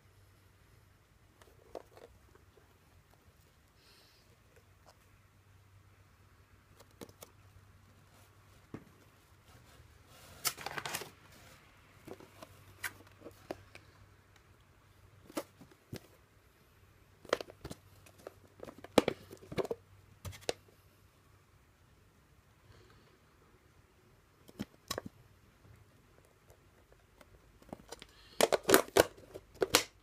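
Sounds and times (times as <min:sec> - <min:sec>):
plastic containers clicking: 0:27.6 - 0:30.0.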